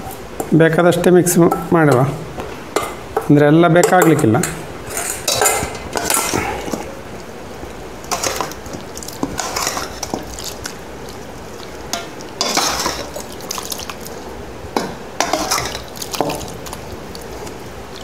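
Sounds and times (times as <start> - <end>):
metal spoon scraping in steel pot: 9.2 - 10.2, 12.4 - 13.2, 15.2 - 15.9.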